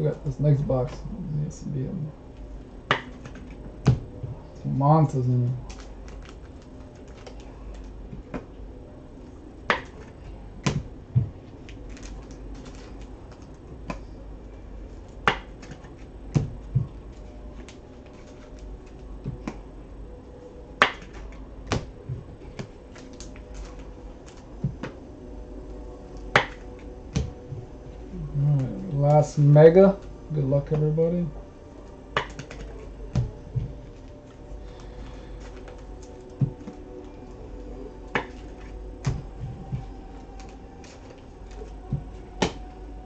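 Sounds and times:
cards being handled on a table: 15.3s - 19.7s, 32.1s - 36.8s.

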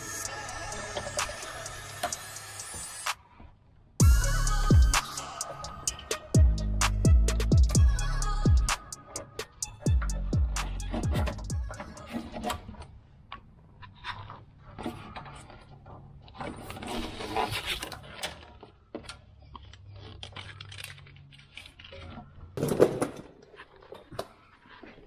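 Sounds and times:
wiring scraping on metal: 0.0s - 3.3s.

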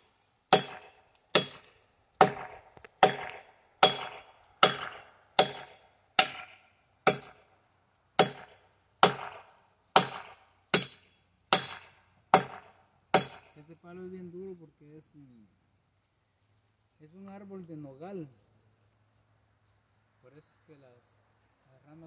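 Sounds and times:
machete chopping into branch: 0.5s - 7.4s, 8.2s - 9.4s, 10.0s - 13.5s.

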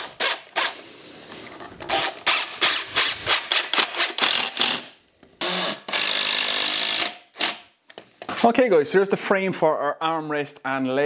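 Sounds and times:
impact driver rattling bursts: 1.9s - 7.7s.

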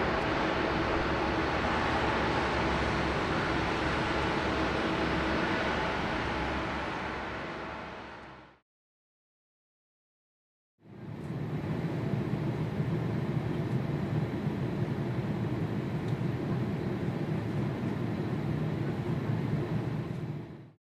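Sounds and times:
airliner cabin noise: 0.0s - 8.4s, 10.9s - 20.7s.

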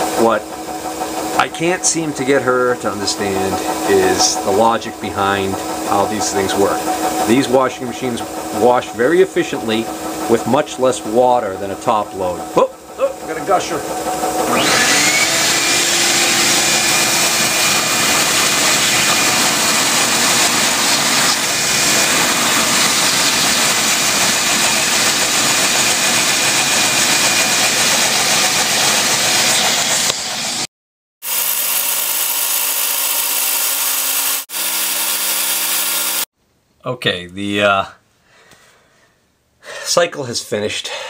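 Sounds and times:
washing machine spinning hum: 0.0s - 30.6s
water gushing through drain pump: 0.0s - 30.6s.

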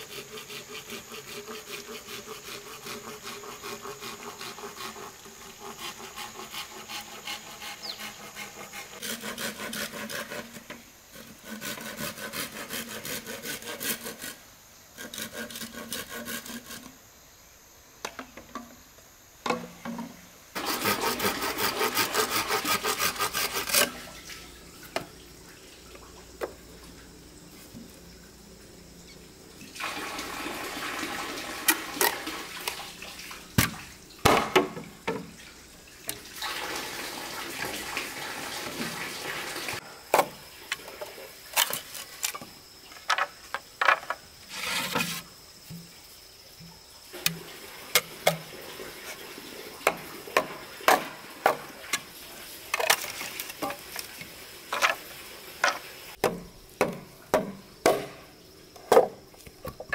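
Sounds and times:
water pouring: 29.6s - 34.2s, 35.3s - 39.8s, 47.2s - 55.4s
sharp irregular knocks: 56.2s - 58.2s.

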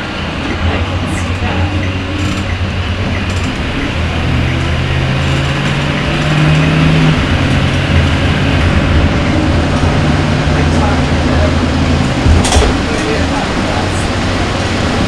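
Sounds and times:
bus engine drone: 0.0s - 15.0s
humming engine note: 0.0s - 15.0s.

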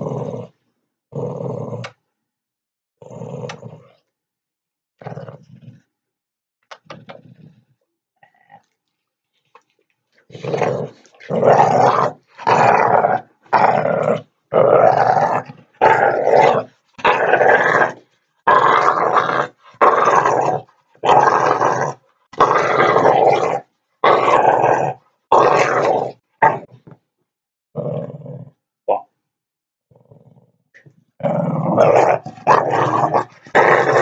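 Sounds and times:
dog play-growling: 10.2s - 23.4s, 31.2s - 34.0s.

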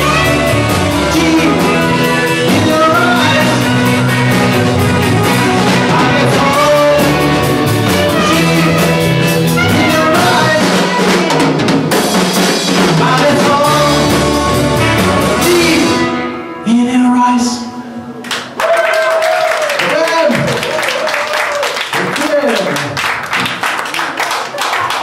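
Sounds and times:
drum beat: 0.0s - 15.8s
electric guitar chords: 0.0s - 18.2s
rock band playing live: 0.0s - 18.6s.

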